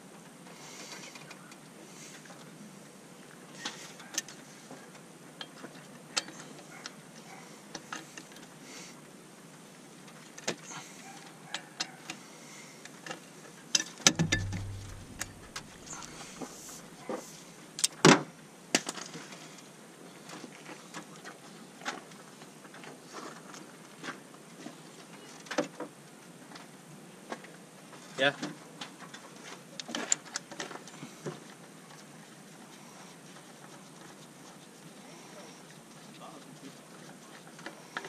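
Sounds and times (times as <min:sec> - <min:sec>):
knocks on metal: 0:14.1 - 0:16.3
dull thump: 0:14.1 - 0:16.8
sharp metal clank: 0:14.1 - 0:16.9.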